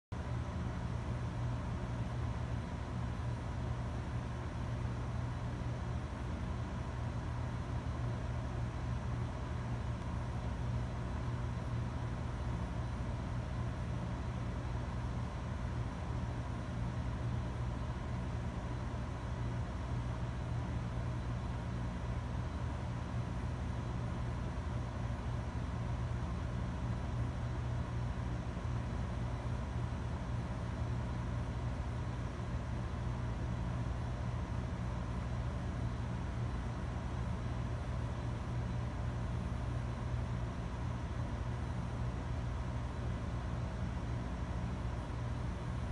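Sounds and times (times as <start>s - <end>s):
computer equipment hum and fan hiss: 0.2s - 45.9s.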